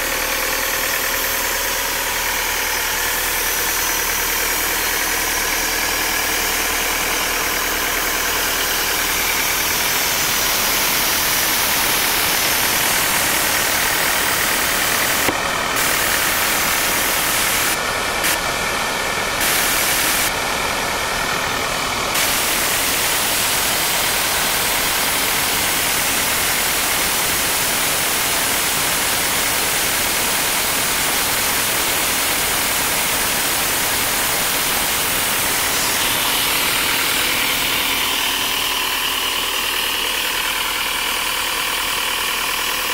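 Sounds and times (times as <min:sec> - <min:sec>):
air compressor diesel engine idling: 0:00.0 - 0:42.9.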